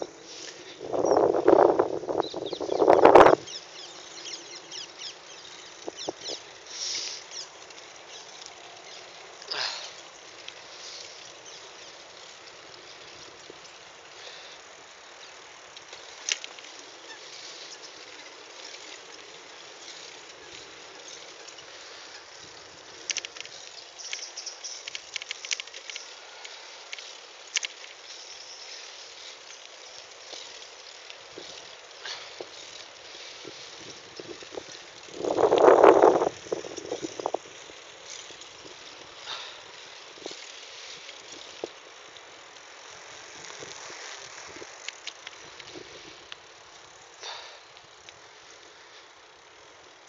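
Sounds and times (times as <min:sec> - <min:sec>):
small birds chirping: 0:00.0 - 0:43.7
bicycle tyres hissing on pavement: 0:00.0 - 0:50.0
rustle: 0:00.0 - 0:50.0
wind noise: 0:00.7 - 0:03.5, 0:33.4 - 0:37.8
sharp clicks and rattles: 0:17.9 - 0:31.7.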